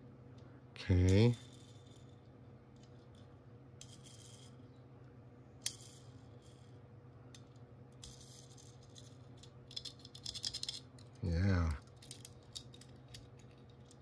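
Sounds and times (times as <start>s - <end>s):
steady low hum: 0.0s - 14.0s
toy car clicking and rattling: 8.0s - 11.2s, 11.8s - 14.0s.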